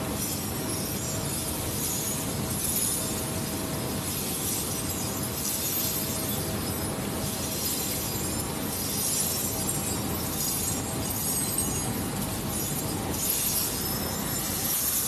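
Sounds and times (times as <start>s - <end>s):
steel chips clinking and rattling: 0.1s - 15.0s.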